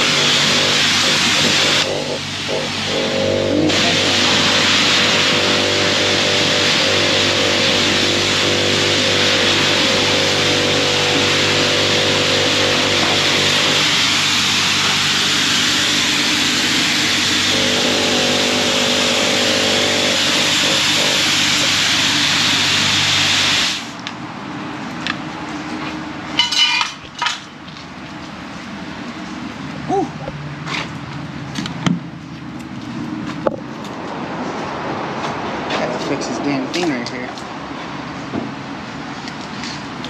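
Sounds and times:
pressure washer spraying water: 0:00.0 - 0:24.0.

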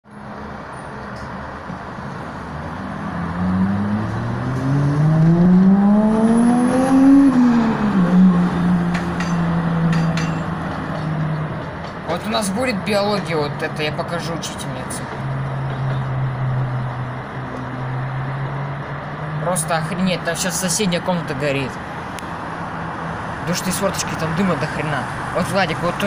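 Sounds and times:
vehicle engine accelerating: 0:02.2 - 0:11.7.

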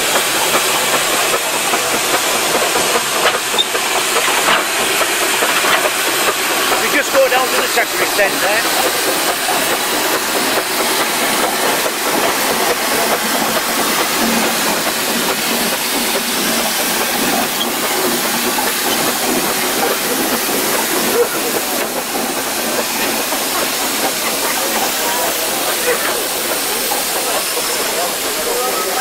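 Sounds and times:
steam hissing: 0:00.0 - 0:29.0
faint voices: 0:17.2 - 0:29.0.

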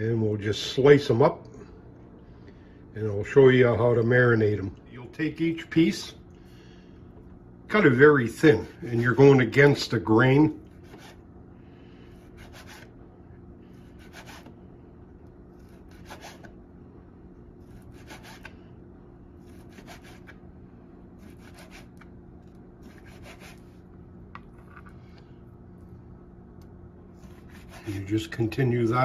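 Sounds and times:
faint steady hum: 0:00.0 - 0:29.0
knife slicing on cutting board: 0:14.0 - 0:14.5, 0:15.6 - 0:16.5, 0:17.8 - 0:18.5, 0:21.2 - 0:22.0, 0:22.8 - 0:23.7, 0:27.2 - 0:28.0.

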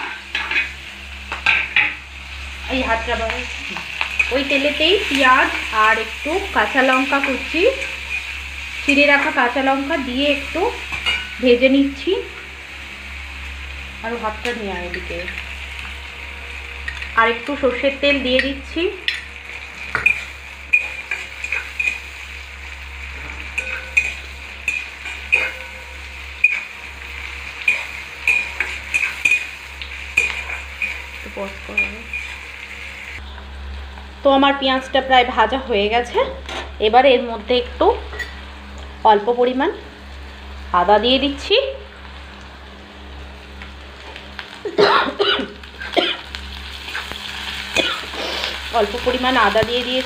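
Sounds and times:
onions sizzling in oil: 0:00.0 - 0:50.0
metal spatula scraping pan: 0:19.8 - 0:22.1, 0:23.1 - 0:33.0
person coughing: 0:44.7 - 0:46.2, 0:47.8 - 0:48.3.

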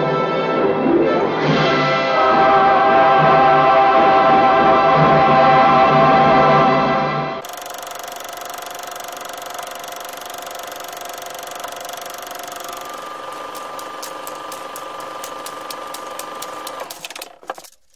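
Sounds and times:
sharp ticks: 0:07.4 - 0:17.4
mechanical whirring with whine: 0:07.4 - 0:17.8.

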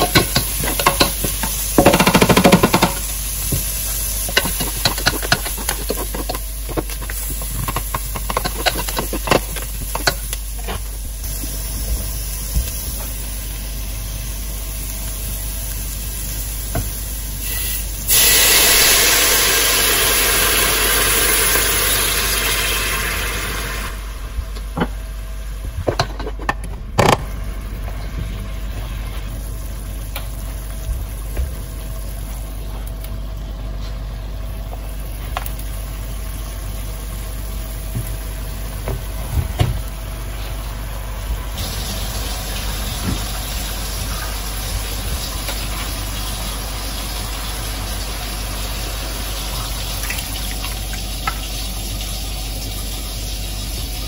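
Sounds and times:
utensils clicking and knocking: 0:00.0 - 0:03.1, 0:04.3 - 0:10.8
low machine hum: 0:00.0 - 0:54.0.

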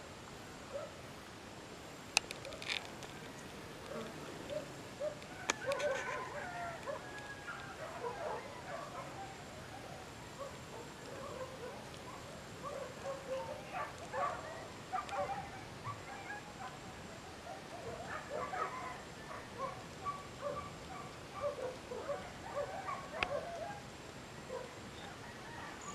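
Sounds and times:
outdoor background noise: 0:00.0 - 0:25.9
animal calls: 0:03.8 - 0:23.8.

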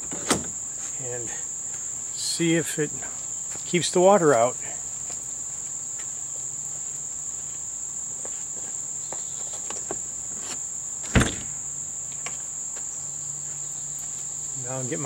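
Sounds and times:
high-pitched insect drone: 0:00.2 - 0:15.0
storage lid shutting with a thump: 0:11.1 - 0:11.6.

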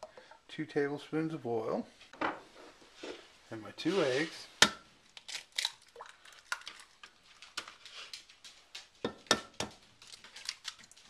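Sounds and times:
eggs cracking on glass: 0:05.1 - 0:11.0.

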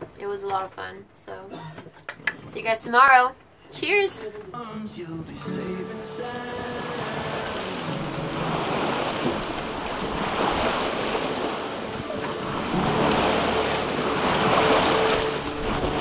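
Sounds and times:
water rushing along a hull: 0:06.0 - 0:16.0
wind buffeting microphone: 0:07.3 - 0:16.0.

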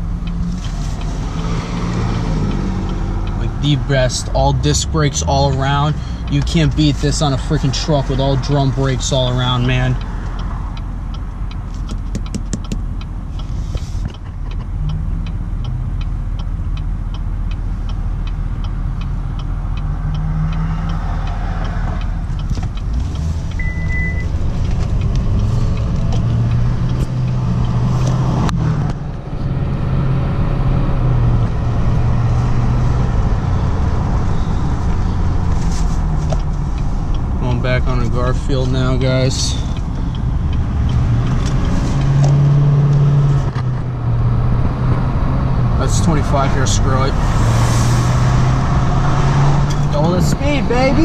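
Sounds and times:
truck engine while driving: 0:00.0 - 0:51.0
fast even ticking: 0:32.7 - 0:43.5.

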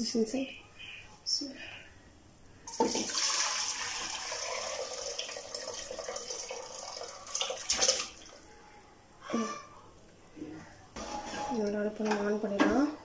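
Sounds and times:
broth pouring into a pot: 0:02.7 - 0:08.2.

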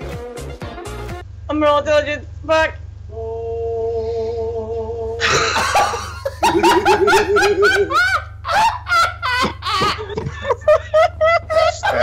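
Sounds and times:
people laughing: 0:05.2 - 0:12.0.

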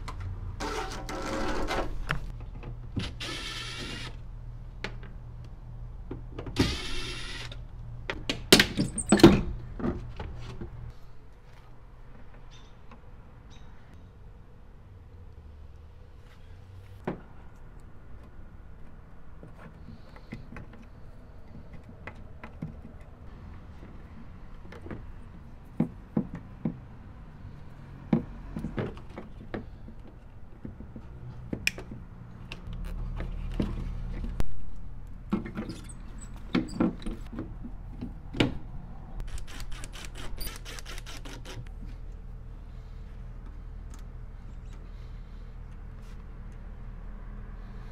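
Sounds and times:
zip tie ratcheting clicks: 0:39.2 - 0:41.7.

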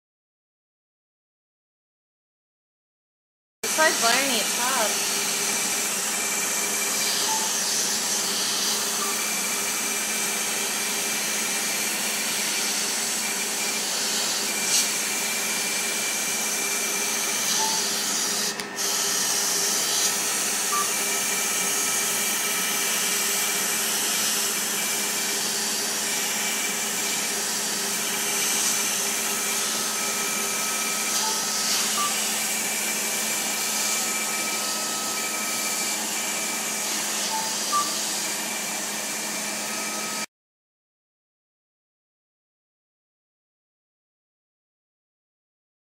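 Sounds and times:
high thin tone: 0:03.7 - 0:05.0.

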